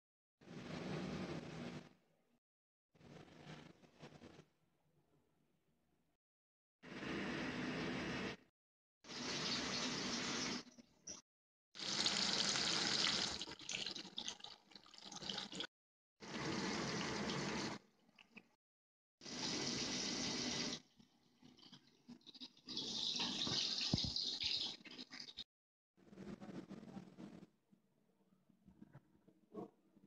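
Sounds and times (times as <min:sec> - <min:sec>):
sausage sizzling in a pan: 0:11.8 - 0:13.4.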